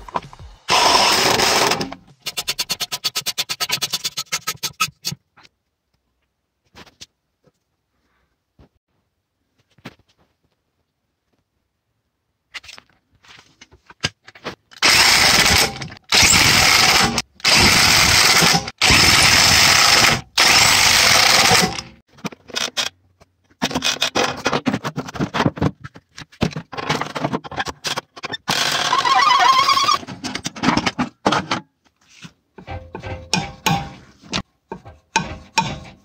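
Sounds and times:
electric impact wrench bursts: 0.6s - 1.9s, 14.8s - 22.0s
tools clattering: 32.6s - 36.0s.

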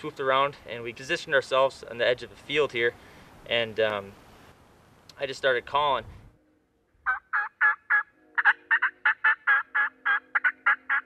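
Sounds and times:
turkey call hen yelps: 7.1s - 11.0s.

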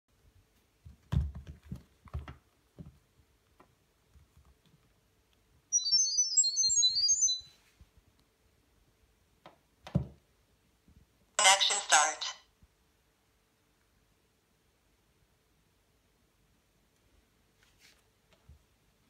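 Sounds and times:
high-pitched beeping chirps: 5.7s - 7.6s.

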